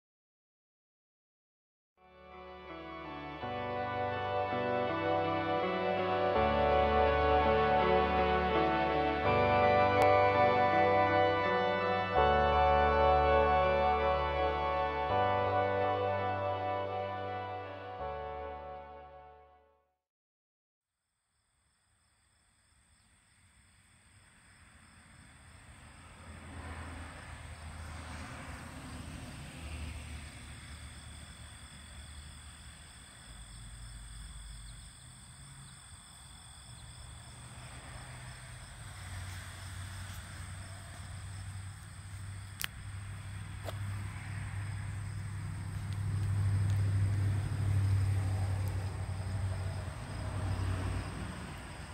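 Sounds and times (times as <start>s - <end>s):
insects chirring: 21.4s - 26.5s, 28.8s - 51.9s.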